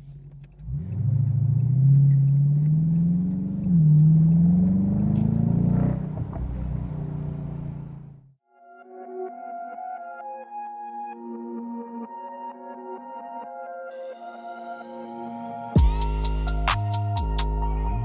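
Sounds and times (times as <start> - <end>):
car engine accelerating: 0.0 - 8.4.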